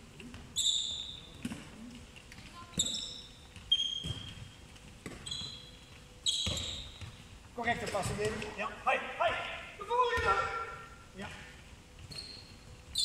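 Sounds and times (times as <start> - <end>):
sports shoes squeaking on floor: 0.3 - 8.5, 12.0 - 13.0
ball bouncing: 1.4 - 5.6, 6.3 - 7.2.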